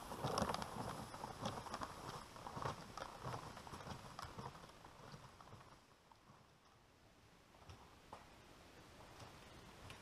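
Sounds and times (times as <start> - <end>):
sled dragging on snow: 0.0 - 6.9.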